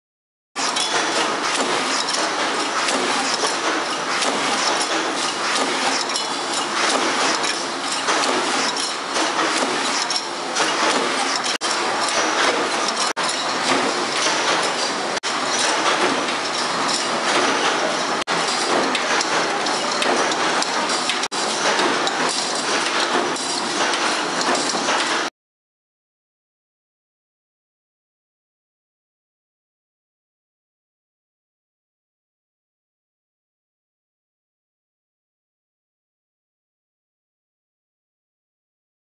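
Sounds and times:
power presses clattering: 0.6s - 25.3s.

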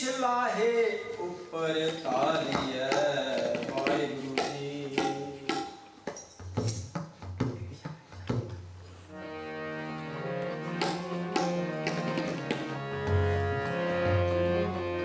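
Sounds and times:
tabla strokes: 2.1s - 8.9s
harmonium chords: 9.1s - 15.0s.

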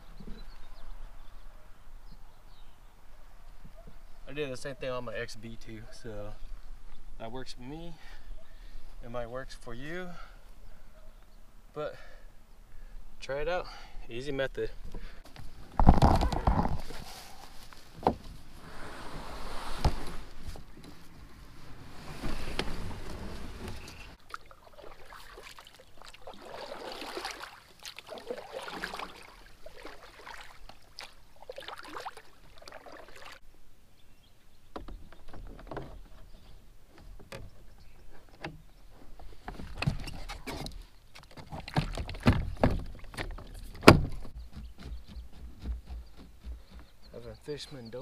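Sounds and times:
water swishing around kayak hull: 18.6s - 33.4s.

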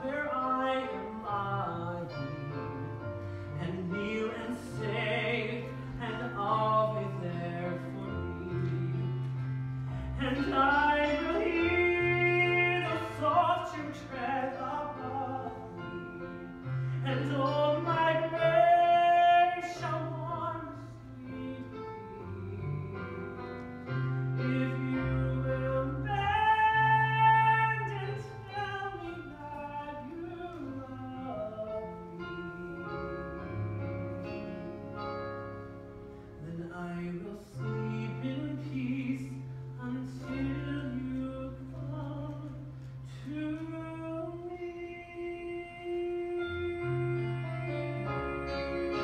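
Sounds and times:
keyboard chords: 0.0s - 43.0s, 43.6s - 49.0s
melody with vibrato: 45.5s - 49.0s.

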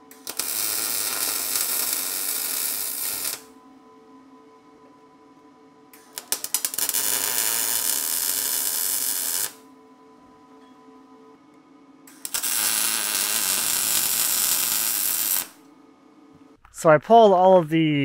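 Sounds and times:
welding arc crackling hiss: 0.1s - 3.5s, 6.0s - 9.6s, 12.1s - 15.6s.

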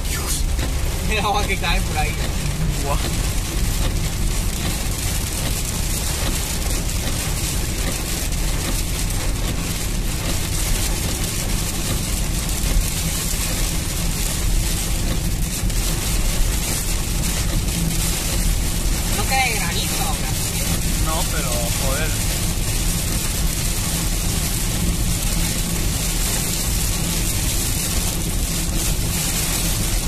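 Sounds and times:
engine and tyres on wet road: 0.0s - 30.0s
heavy rain on car roof: 0.0s - 30.0s.

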